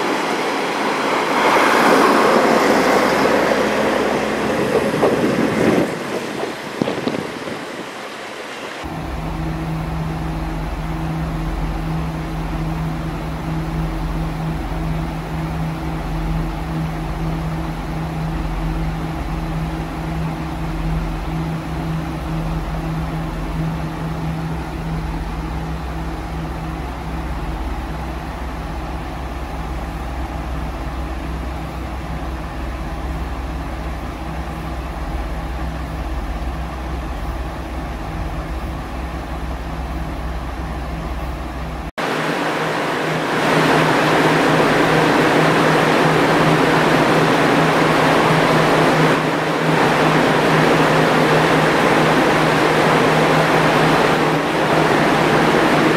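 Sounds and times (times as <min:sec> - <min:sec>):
diesel railcar engine idling: 0:00.0 - 0:55.9
loud steady rushing noise: 0:00.0 - 0:55.9.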